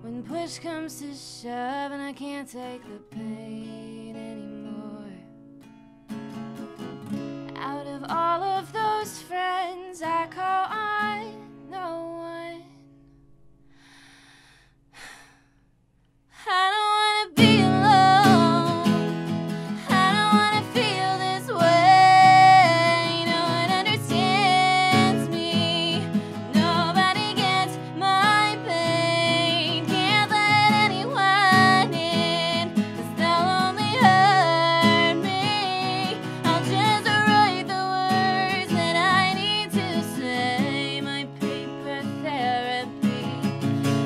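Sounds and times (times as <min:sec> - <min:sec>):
woman singing: 0:00.0 - 0:05.3, 0:07.5 - 0:12.8, 0:16.4 - 0:44.0
acoustic guitar strumming: 0:17.4 - 0:44.0.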